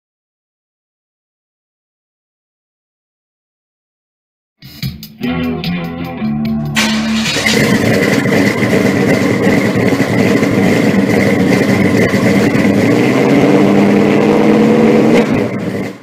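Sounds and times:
car engine running: 0:06.6 - 0:16.0.

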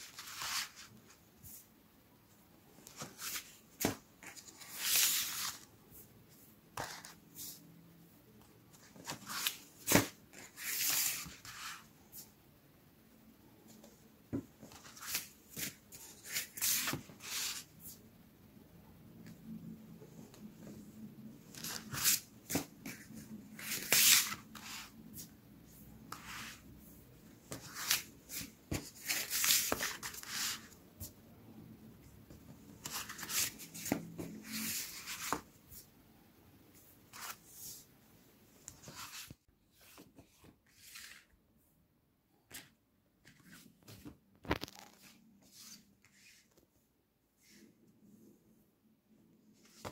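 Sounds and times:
paper rustling and pages turning: 0:00.0 - 0:01.6, 0:02.8 - 0:05.7, 0:06.3 - 0:07.6, 0:08.7 - 0:12.3, 0:13.7 - 0:18.0, 0:20.3 - 0:25.4, 0:26.0 - 0:31.1, 0:32.3 - 0:35.8, 0:36.8 - 0:37.8, 0:38.6 - 0:41.3, 0:42.5 - 0:46.6, 0:49.6 - 0:49.9.

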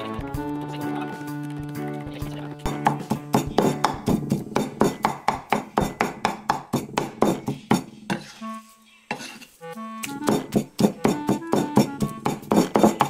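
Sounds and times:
plucked string music: 0:00.0 - 0:04.0
knife chopping on cutting board: 0:02.7 - 0:08.3, 0:10.0 - 0:13.0.

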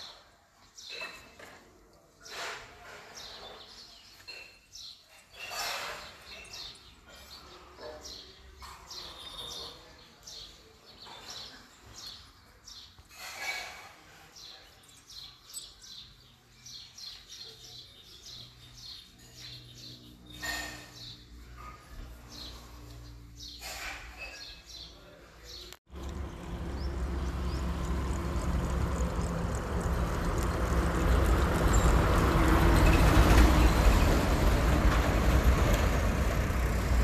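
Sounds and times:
small birds chirping: 0:03.1 - 0:37.0.

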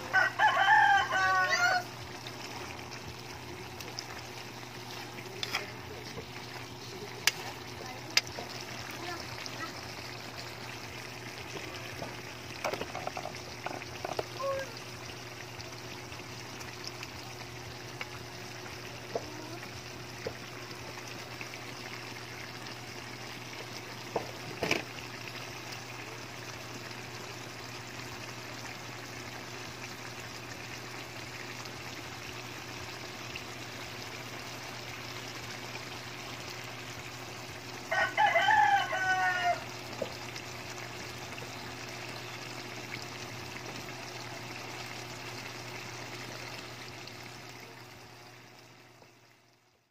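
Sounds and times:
rooster crowing: 0:00.0 - 0:02.0, 0:37.9 - 0:39.8
sauce bubbling in a wok: 0:00.0 - 0:49.9.

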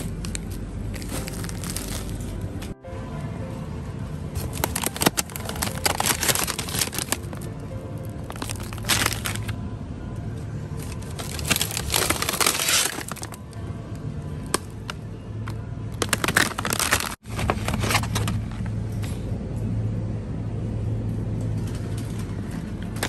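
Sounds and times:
plastic packaging crinkling: 0:00.0 - 0:02.8, 0:04.4 - 0:07.5, 0:08.2 - 0:09.6, 0:10.8 - 0:13.4, 0:16.0 - 0:18.6
background music: 0:00.0 - 0:17.8
steady low hum: 0:00.0 - 0:23.0.

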